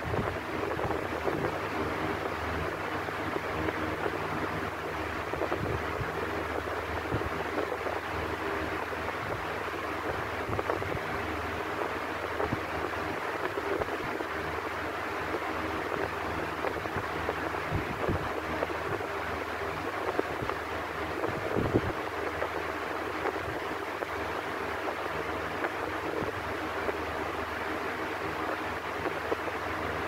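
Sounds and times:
electric fan whooshing: 0:00.0 - 0:30.0
low motor hum: 0:00.0 - 0:30.0.

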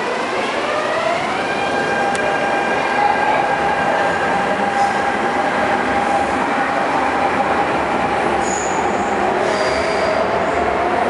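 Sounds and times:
train wheel squeals: 0:08.4 - 0:10.6.

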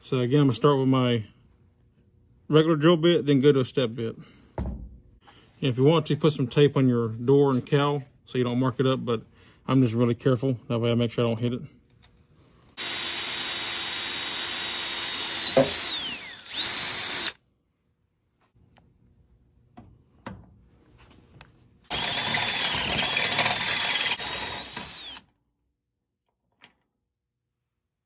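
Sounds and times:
electric drill drilling sheet metal: 0:12.8 - 0:17.4, 0:21.9 - 0:25.3.

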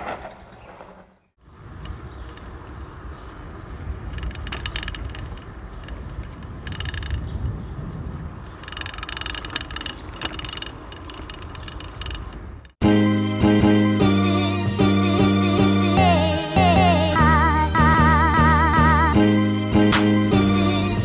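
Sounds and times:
low rumble of tyres: 0:00.0 - 0:12.8
wind: 0:00.0 - 0:21.0
bike freehub ticking: 0:01.7 - 0:12.8.

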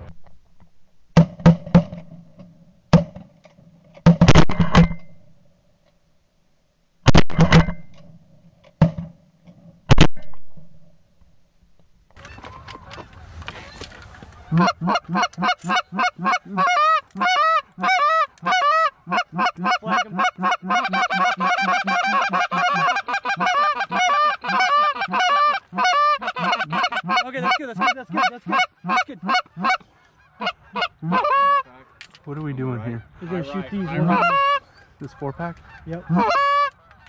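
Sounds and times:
rustle: 0:11.2 - 0:19.1
goose calls honking and clucking: 0:12.2 - 0:32.0, 0:32.8 - 0:37.0.

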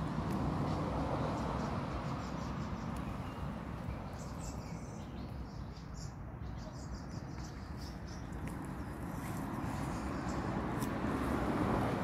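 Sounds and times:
bird chirps: 0:01.4 - 0:10.5.

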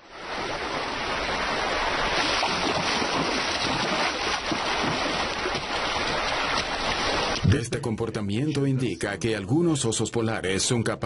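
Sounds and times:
river water rushing over rocks: 0:00.0 - 0:07.4.

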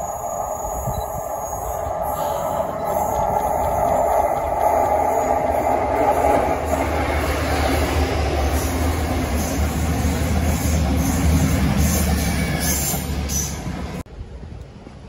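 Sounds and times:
diesel train engine rumble: 0:00.0 - 0:15.0
faint wind: 0:00.0 - 0:15.0.

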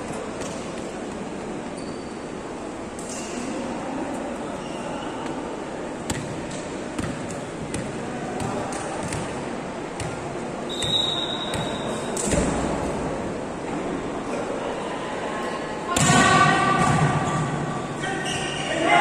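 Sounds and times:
murmur in large hall: 0:00.0 - 0:19.0
volleyball bouncing on floor: 0:06.1 - 0:09.4.

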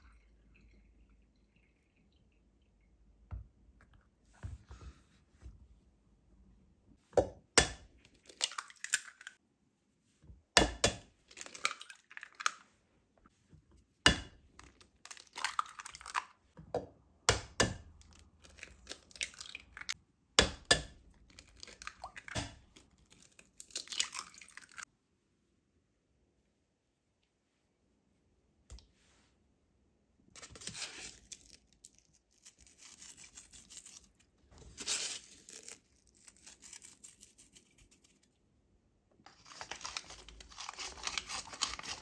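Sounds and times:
eggshell crackling: 0:14.1 - 0:16.4, 0:17.9 - 0:20.0, 0:39.3 - 0:42.0.

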